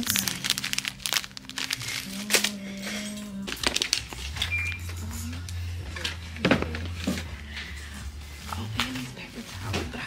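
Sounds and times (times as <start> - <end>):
short high beep: 4.5 - 4.9.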